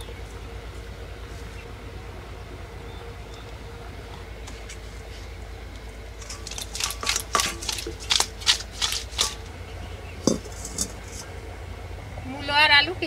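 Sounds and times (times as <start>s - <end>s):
metal cookware clicking and clinking: 6.2s - 8.4s, 9.0s - 9.5s, 10.2s - 11.2s
pan knocking on stove: 6.2s - 8.4s, 10.3s - 11.0s.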